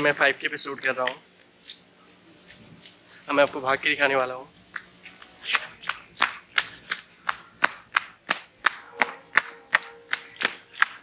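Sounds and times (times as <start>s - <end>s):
running footsteps: 4.8s - 11.0s.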